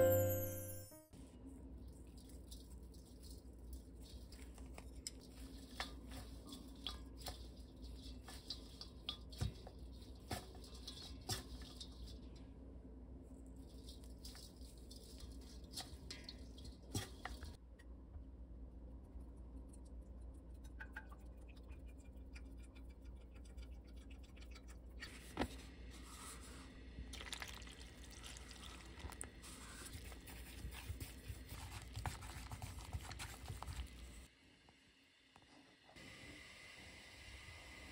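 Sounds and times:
low steady hum: 0.0 - 36.4
batter frying: 1.7 - 12.5, 13.5 - 17.6, 20.6 - 34.3
chopsticks in metal bowl: 2.1 - 12.4
oil pouring into pan: 27.1 - 29.3.

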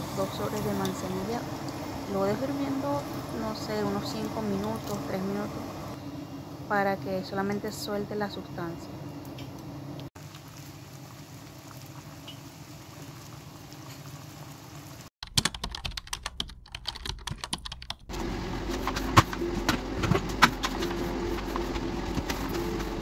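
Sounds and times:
tea boiling and bubbling: 0.0 - 6.0, 9.0 - 15.1
broom sweeping hard floor: 18.6 - 23.0.

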